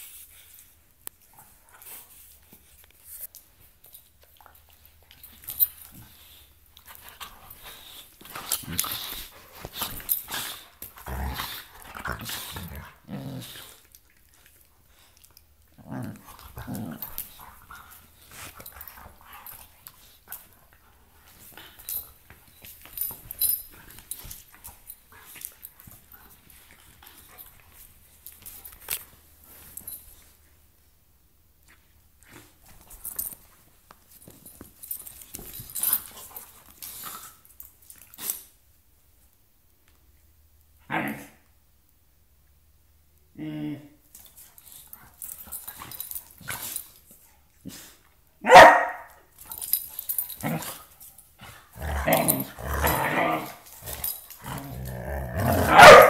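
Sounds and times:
dogs scuffling: 16.2 - 30.4
dog barking: 48.4 - 49.1, 55.7 - 56.0.

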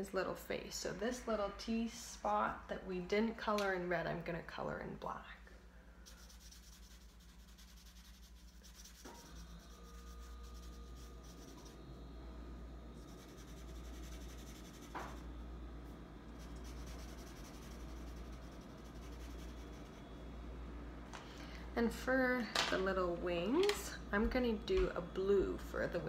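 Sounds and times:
marker scrubbing on paper: 6.0 - 11.8, 13.0 - 15.2, 16.4 - 20.0.

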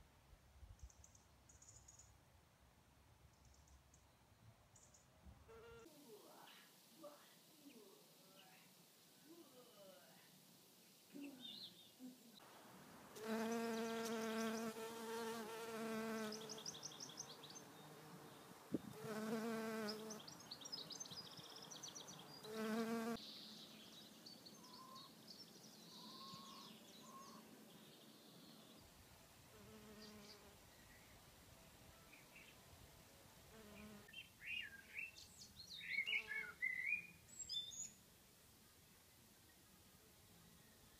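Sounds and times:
small birds chirping: 0.8 - 2.2, 13.2 - 28.9, 33.6 - 38.0
bee buzzing in flight: 13.2 - 16.6, 18.8 - 20.2, 22.5 - 23.2.

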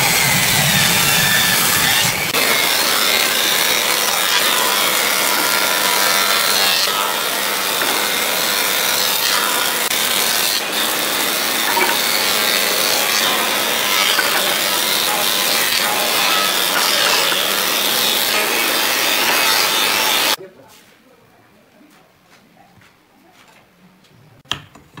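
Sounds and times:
thickness planer planing wood: 0.0 - 20.4.

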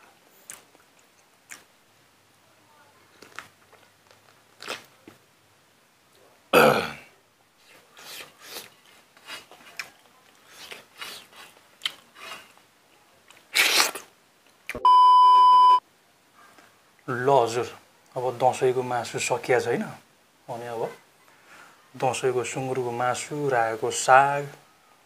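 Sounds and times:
man clearing throat: 6.5 - 7.1
eating with fingers: 7.6 - 12.6, 13.2 - 14.1
electronic beep: 14.8 - 15.8.

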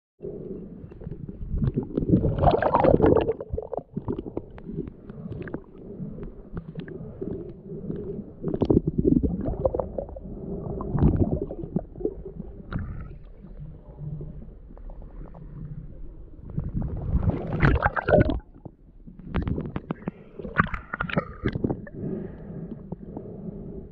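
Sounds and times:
underwater gurgling and sloshing: 0.2 - 23.9
underwater clicks and knocks: 17.5 - 22.0.

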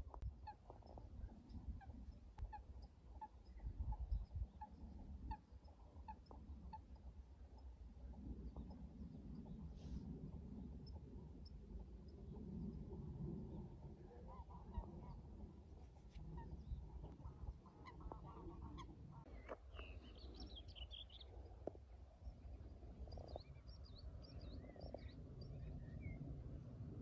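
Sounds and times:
steady low rumble: 0.0 - 27.0
wild bird calls: 16.1 - 21.4.

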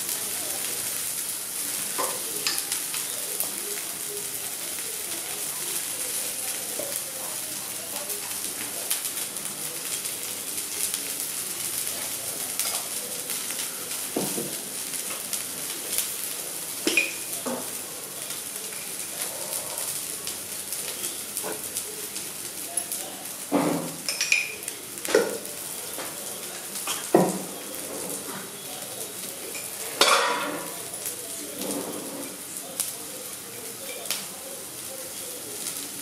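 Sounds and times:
vegetables sizzling in oil: 0.0 - 36.0.

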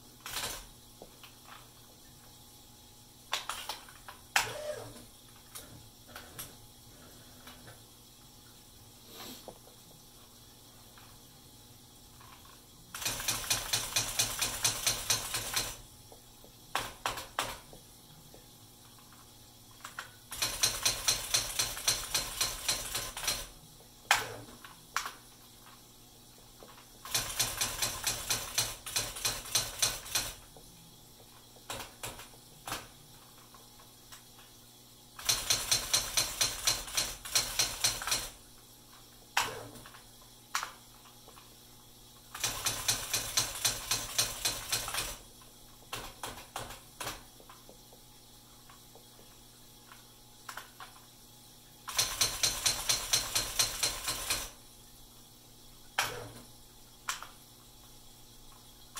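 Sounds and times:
electronic typewriter typing: 0.2 - 0.7, 12.9 - 15.8, 19.8 - 23.5, 27.0 - 30.4, 31.7 - 32.9, 35.2 - 38.4, 42.3 - 45.2, 45.9 - 47.3, 51.9 - 54.6
hiss: 4.4 - 5.0, 8.9 - 9.8.

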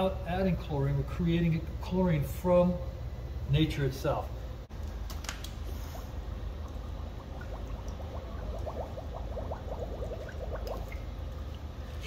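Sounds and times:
steady low hum: 0.0 - 12.0
hand sloshing water in tank: 5.1 - 12.0
bubbly pops: 6.4 - 11.8.

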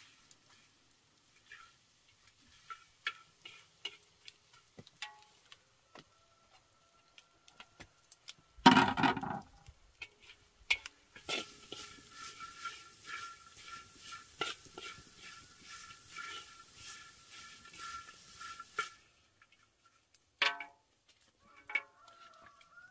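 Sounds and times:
chopsticks scraping in a wok: 0.0 - 5.6, 9.2 - 20.2, 21.4 - 22.9
chopsticks tapping wok: 1.4 - 5.6, 10.0 - 19.7, 20.4 - 20.8.

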